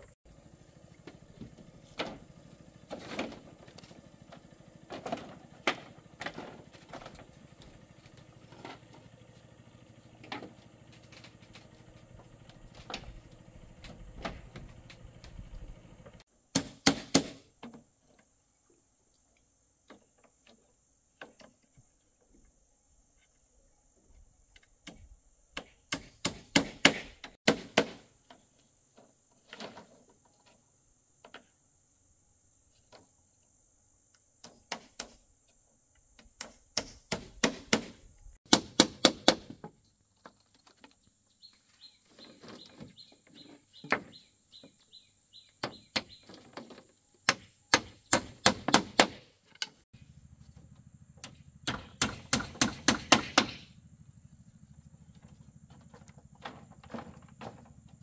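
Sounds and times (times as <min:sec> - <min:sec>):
tool striking bamboo: 0:16.5 - 0:17.8, 0:24.8 - 0:28.1, 0:34.4 - 0:35.2, 0:36.2 - 0:39.8, 0:47.2 - 0:49.8, 0:51.2 - 0:53.7.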